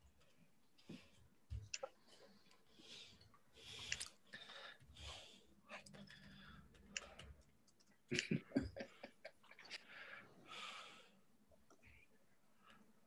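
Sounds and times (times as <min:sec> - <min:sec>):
faint breathing: 0:02.1 - 0:07.4, 0:09.7 - 0:11.3.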